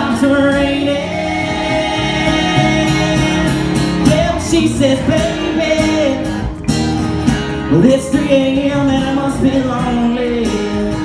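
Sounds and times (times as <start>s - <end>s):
person singing: 0.0s - 6.5s
amplified guitar: 0.0s - 11.0s.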